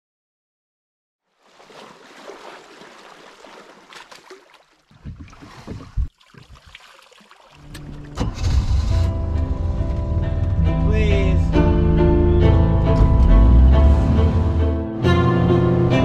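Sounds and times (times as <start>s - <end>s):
water sloshing and splashing: 1.3s - 8.6s
low bumps on boat: 4.9s - 6.7s.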